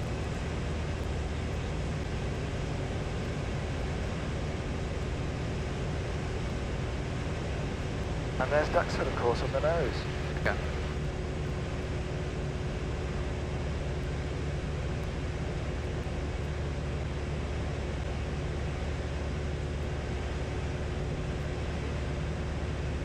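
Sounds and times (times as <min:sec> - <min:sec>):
faint steady hum: 0:00.0 - 0:23.0
light aircraft engine droning: 0:00.0 - 0:23.0.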